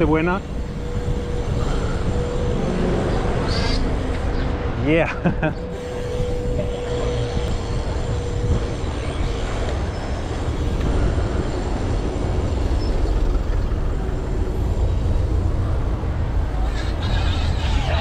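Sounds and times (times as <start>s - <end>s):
road noise: 0.0s - 18.0s
traffic: 0.0s - 18.0s
wind rumble on microphone: 0.0s - 18.0s.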